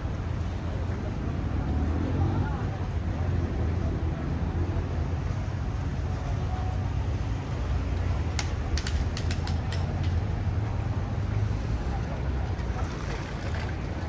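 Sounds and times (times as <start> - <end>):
low street rumble: 0.0 - 14.0
sharp irregular clicks: 8.3 - 10.2.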